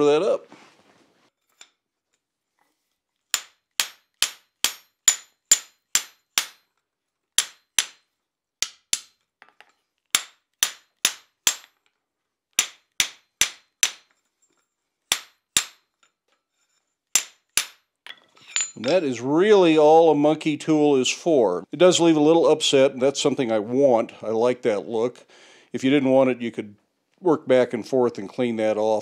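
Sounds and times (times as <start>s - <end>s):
hammer striking metal: 3.3s - 6.7s, 7.4s - 8.0s, 8.6s - 9.2s, 10.1s - 11.8s, 12.6s - 14.1s, 15.1s - 15.9s, 17.2s - 19.0s.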